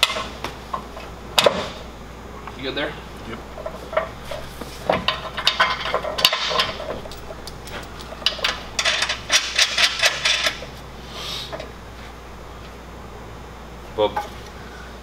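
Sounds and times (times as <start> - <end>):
metal plate and bolts clinking: 5.1 - 10.6.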